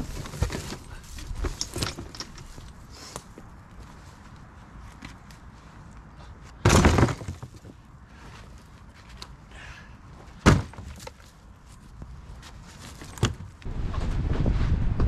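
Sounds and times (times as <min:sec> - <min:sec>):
log chunks thudding: 0:06.5 - 0:07.8, 0:10.3 - 0:11.4.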